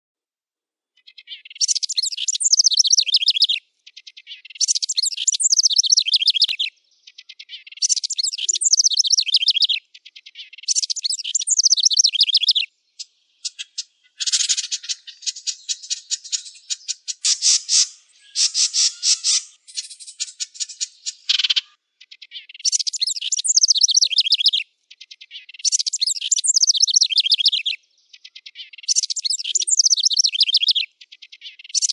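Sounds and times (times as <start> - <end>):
wren trilling song: 1.0 - 31.9
wren chattering notes: 1.7 - 3.6, 4.6 - 6.7, 7.9 - 9.8, 10.7 - 12.7, 13.4 - 21.7, 22.6 - 24.6, 25.6 - 27.8, 28.9 - 30.8.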